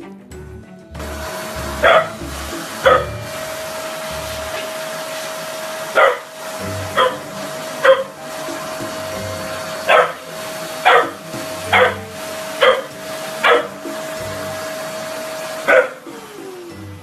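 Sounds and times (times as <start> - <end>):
vacuum cleaner droning: 1.0 - 17.0
puppy barking: 1.8 - 2.2, 2.8 - 3.2, 5.9 - 6.3, 6.9 - 8.2, 9.8 - 12.0, 12.6 - 13.8, 15.6 - 16.0.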